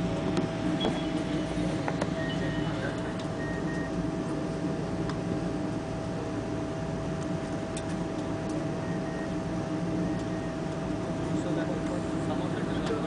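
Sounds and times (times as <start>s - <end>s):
aircraft engine rumble: 0.0s - 13.0s
constant whine: 0.0s - 13.0s.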